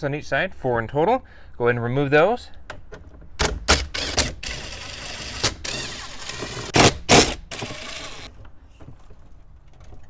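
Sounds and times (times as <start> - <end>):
impact driver motor whine: 3.9 - 8.3
impact driver hammering: 5.3 - 8.3.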